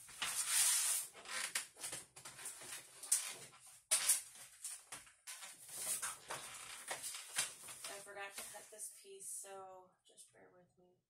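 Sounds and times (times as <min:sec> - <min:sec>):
rustling cardstock sheets: 0:00.0 - 0:08.8.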